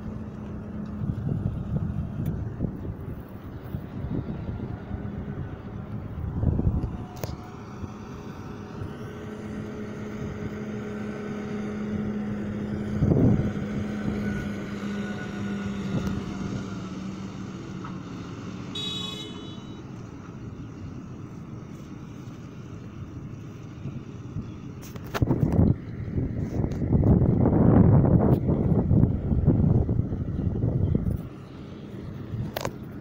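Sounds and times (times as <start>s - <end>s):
tractor engine driving past: 0.0s - 24.8s.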